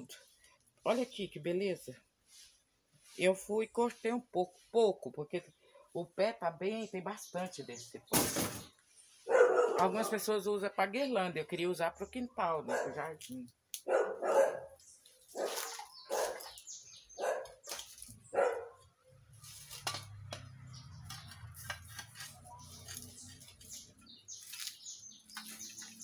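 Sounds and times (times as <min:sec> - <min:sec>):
dog barking: 0:09.3 - 0:10.3, 0:12.6 - 0:13.1, 0:13.8 - 0:16.5, 0:17.2 - 0:17.6, 0:18.3 - 0:18.8.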